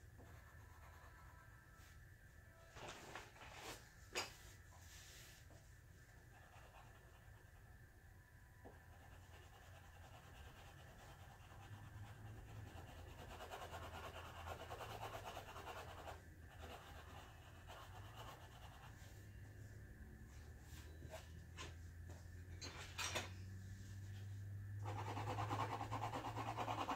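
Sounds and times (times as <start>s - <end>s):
low room hum: 0.0s - 26.9s
pencil scratching on paper: 6.2s - 7.6s, 8.7s - 19.1s, 24.8s - 26.9s.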